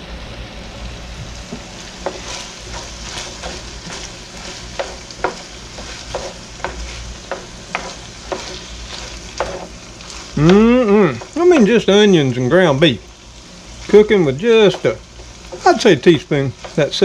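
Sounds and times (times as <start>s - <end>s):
meat and onion sizzling in skillet: 0.0s - 17.0s
spatula knocking and scraping pan: 2.0s - 11.7s, 13.9s - 17.0s.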